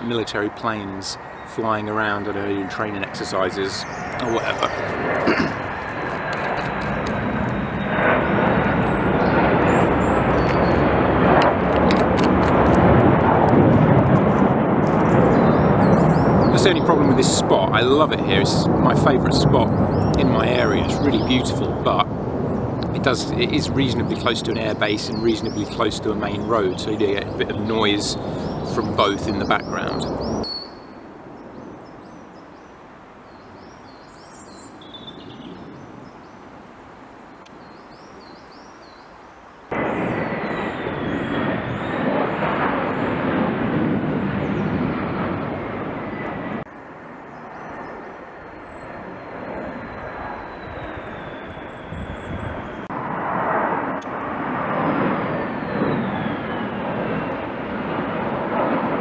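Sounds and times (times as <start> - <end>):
small birds chirping: 0.0 - 11.0, 15.2 - 36.5, 37.1 - 43.2, 47.2 - 52.9
military planes flying over: 0.0 - 59.0.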